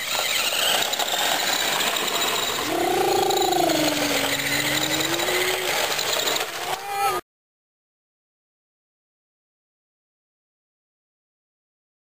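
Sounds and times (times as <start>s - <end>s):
toy car motors buzzing: 0.0s - 7.2s
long drawn-out call: 2.4s - 6.1s.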